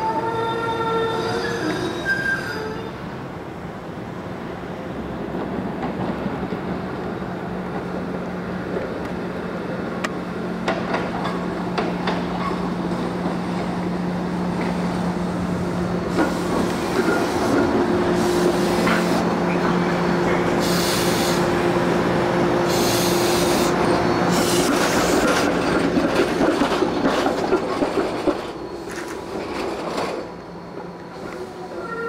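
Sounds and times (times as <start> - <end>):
trolley electric hum: 2.8 - 32.0
wheels clicking over rail joints: 24.6 - 30.3.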